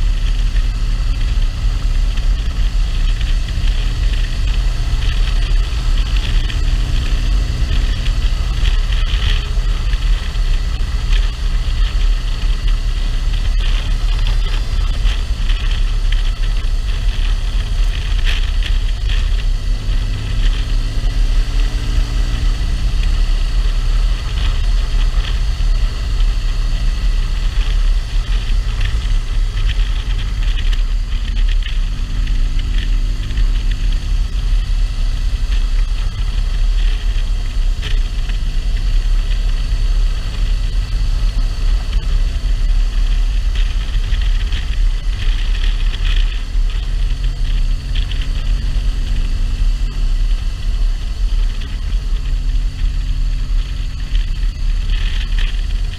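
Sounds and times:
motorcycle engine: 0.0 - 55.9
wind rumble on microphone: 0.0 - 55.9.

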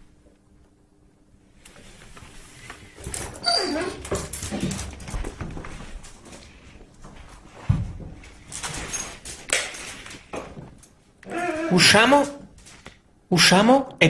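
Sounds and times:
rustling and knocks: 2.0 - 11.0
puppy whining: 3.4 - 4.1, 11.2 - 12.2.

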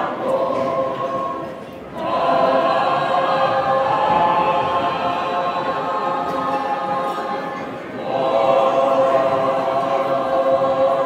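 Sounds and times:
choir singing unaccompanied: 0.0 - 11.0.

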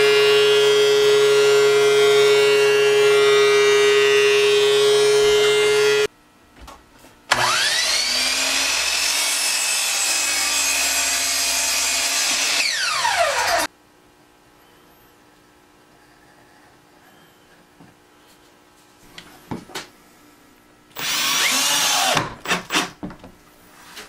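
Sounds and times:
thickness planer whining: 0.0 - 6.1, 7.3 - 13.7, 21.0 - 22.8
miter saw motor whine: 7.3 - 13.7.

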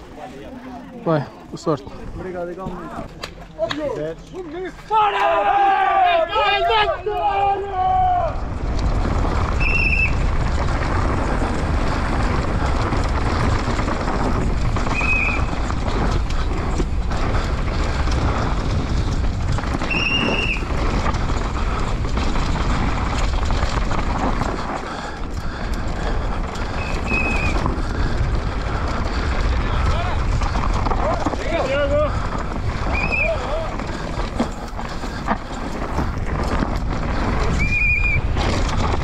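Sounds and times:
bike rattling: 0.0 - 39.0
wind rushing over microphone: 6.4 - 39.0
tyres crunching over gravel: 8.2 - 39.0.

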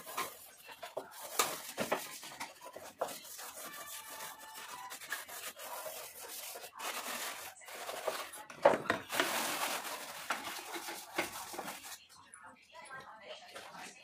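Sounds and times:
steel scrubber scrubbing plastic tray: 0.0 - 12.0.

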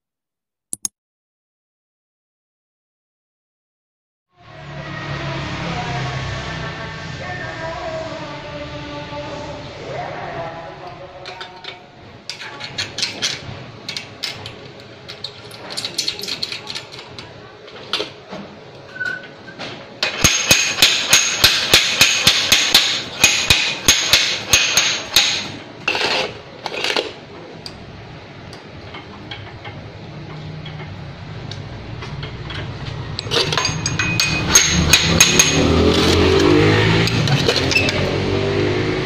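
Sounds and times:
low mechanical hum: 4.4 - 39.0
metal-on-metal hammering: 20.0 - 26.3, 28.5 - 38.2
metallic clinks: 33.2 - 36.6.

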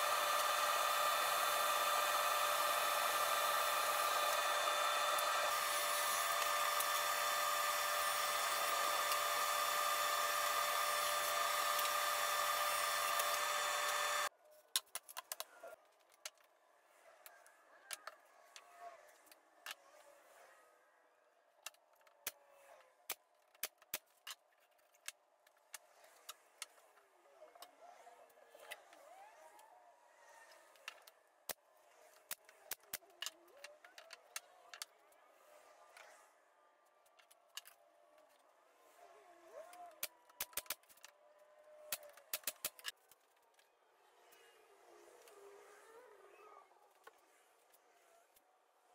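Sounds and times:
loud running machine: 0.0 - 14.3
pneumatic nailer firing: 0.0 - 14.3.

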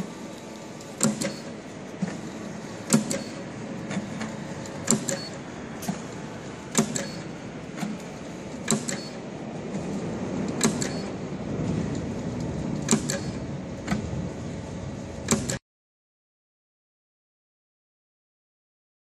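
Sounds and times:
machine clicking: 0.0 - 14.2, 15.1 - 15.6
conveyor belt running: 0.0 - 15.6.

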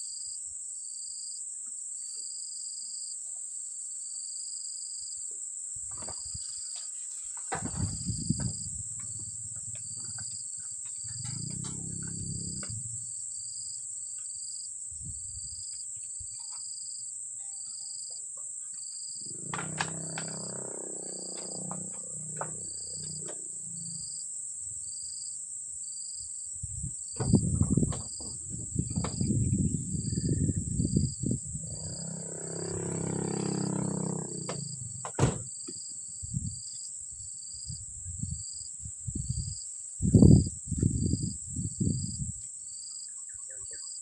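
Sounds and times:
insects droning: 0.0 - 44.0
low thumps: 7.5 - 10.4, 19.2 - 23.5
low rumbling: 11.0 - 13.3, 19.2 - 24.0.

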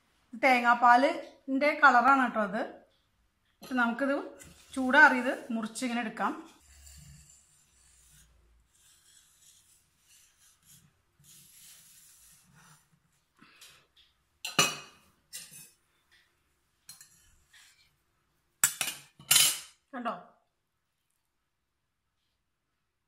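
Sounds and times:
knife scraping a metal plate: 6.5 - 12.8.

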